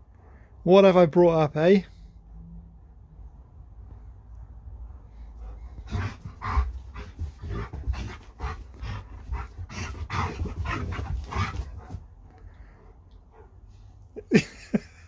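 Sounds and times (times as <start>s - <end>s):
dog panting hard: 5.3s - 13.8s.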